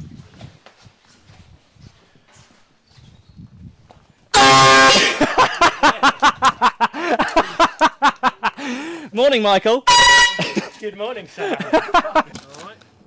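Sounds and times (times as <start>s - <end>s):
air horn blast: 4.4s - 5.3s, 9.9s - 10.8s
people laughing: 5.0s - 9.1s, 10.3s - 12.5s.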